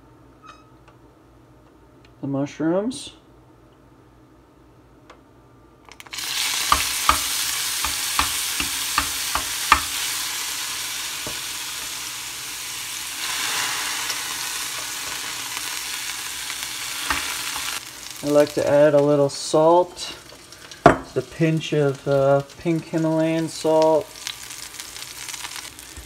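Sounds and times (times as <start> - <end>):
mushrooms sizzling in oil: 6.0 - 26.0
utensil tapping pan: 6.7 - 10.0.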